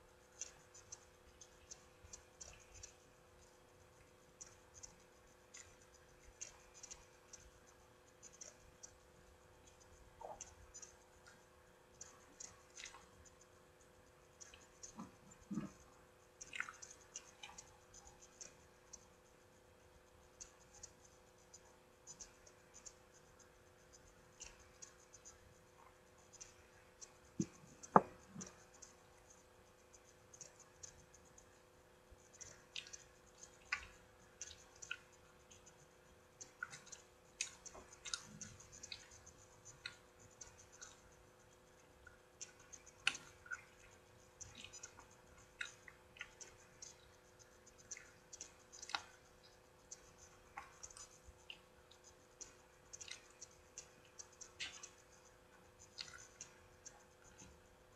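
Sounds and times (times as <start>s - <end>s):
chewing: 14.4s - 18.6s, 36.4s - 41.0s, 42.0s - 47.0s, 47.8s - 49.2s, 49.9s - 55.0s, 55.9s - 57.5s.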